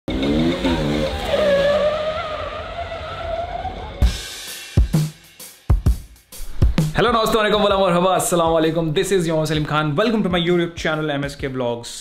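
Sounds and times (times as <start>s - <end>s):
music with heavy bass drum hits: 4.0s - 7.2s.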